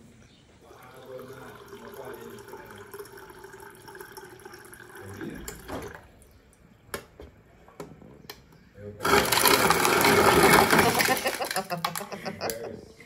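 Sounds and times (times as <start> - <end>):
water pouring into glass with ice: 0.6 - 6.1, 9.0 - 12.0.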